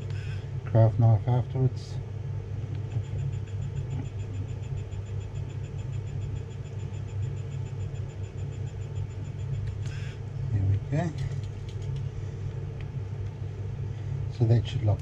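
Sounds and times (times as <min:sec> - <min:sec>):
steady low hum: 0:00.0 - 0:15.0
small motor ticking whine: 0:02.7 - 0:10.3, 0:11.0 - 0:12.1.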